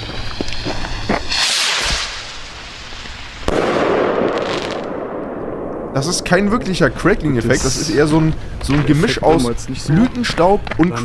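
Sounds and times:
firework rocket hissing: 0.0s - 5.0s
firework bursting: 0.0s - 7.9s
firework crackling: 0.0s - 9.0s.

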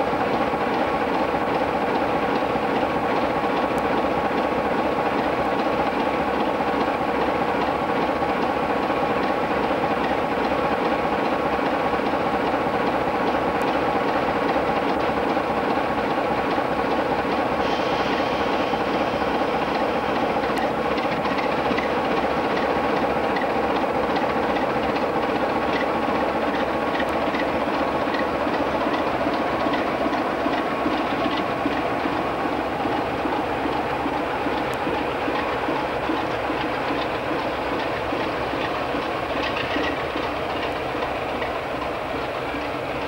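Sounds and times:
diesel locomotive engines: 0.0s - 43.0s
wheels clicking over rail joints: 33.6s - 43.0s.

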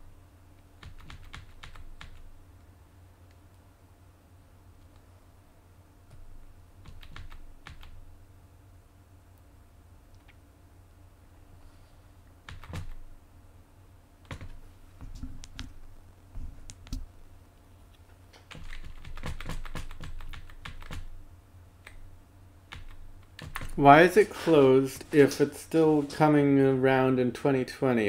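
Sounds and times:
computer keyboard keys clicking: 0.8s - 2.2s, 6.8s - 8.0s, 12.5s - 13.0s, 18.4s - 21.1s, 22.7s - 23.8s.

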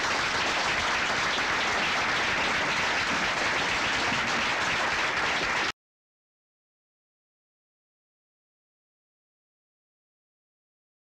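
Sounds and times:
audience applauding: 0.0s - 5.7s.

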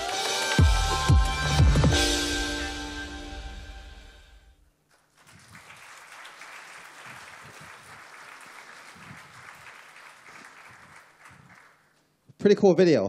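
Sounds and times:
audience applauding: 0.0s - 1.6s, 4.9s - 12.0s.

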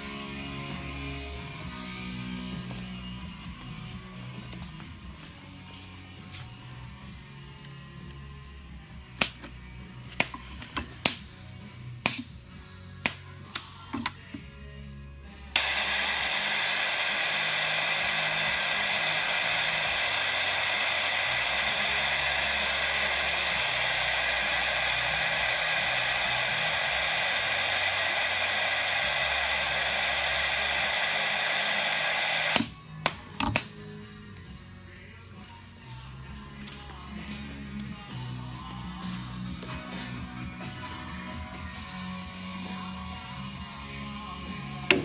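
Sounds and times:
faint rock music from radio: 0.0s - 45.0s
machine air hiss: 15.6s - 32.8s.

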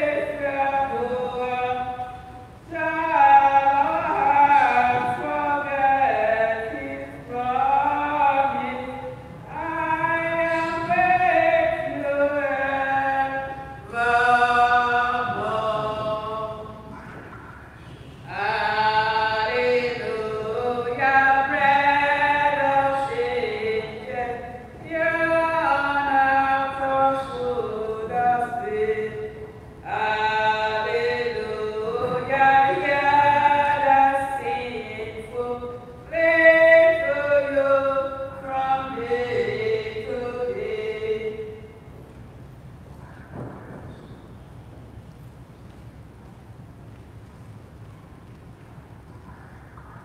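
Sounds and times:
choir singing a hymn: 0.0s - 17.3s, 18.2s - 41.7s.

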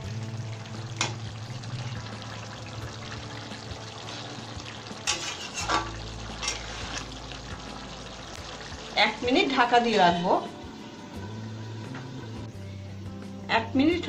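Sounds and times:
gravy sloshing: 0.5s - 10.6s
metal spoon scraping a pan: 5.0s - 7.2s.

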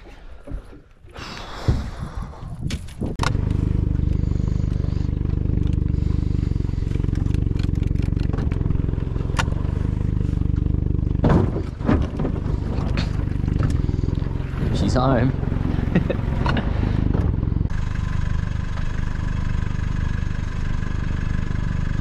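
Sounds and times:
outboard motor running: 3.2s - 22.0s
knocks and rustling: 6.8s - 14.9s, 15.6s - 17.6s.

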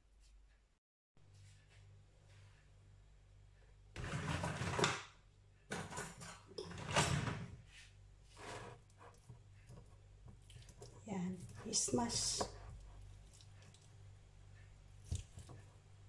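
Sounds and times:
drawer sliding open: 4.0s - 5.0s, 5.7s - 7.6s
metal cutlery clattering: 5.7s - 7.2s.

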